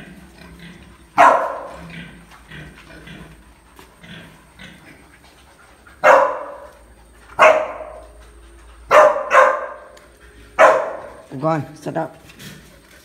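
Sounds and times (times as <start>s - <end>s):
dog barking: 1.2s - 1.8s, 6.0s - 6.8s, 7.4s - 8.0s, 8.9s - 10.0s, 10.6s - 11.2s.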